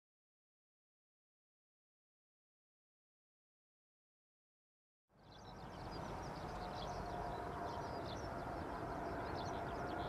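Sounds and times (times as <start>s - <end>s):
distant jet engines rumbling: 5.2s - 10.0s.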